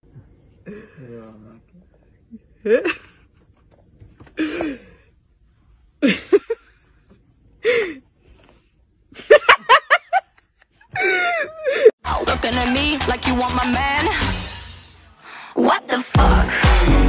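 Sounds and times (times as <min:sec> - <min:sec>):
person gasping: 0:04.4 - 0:05.1.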